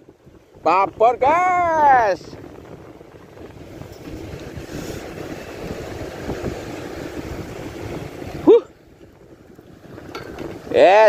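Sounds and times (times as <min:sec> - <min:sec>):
wind buffeting microphone: 0:00.0 - 0:11.0
sea waves breaking on rocks: 0:00.5 - 0:11.0.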